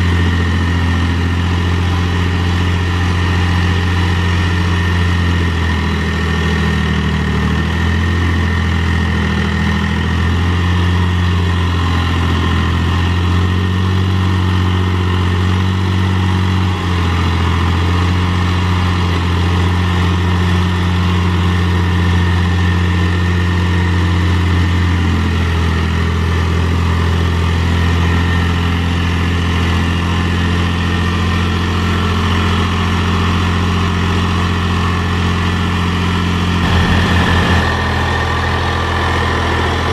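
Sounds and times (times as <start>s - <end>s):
tractor diesel engine running: 0.0s - 39.9s
blade dragging through dirt: 36.6s - 38.3s.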